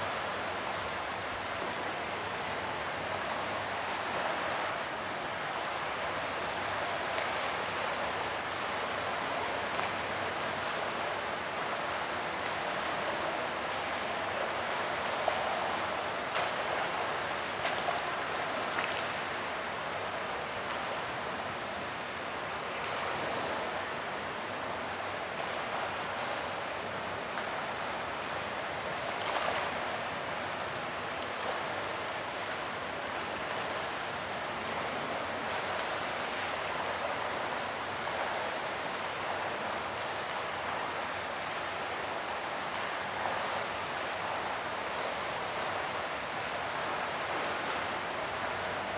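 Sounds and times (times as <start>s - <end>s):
fountain water splashing: 0.0s - 48.9s.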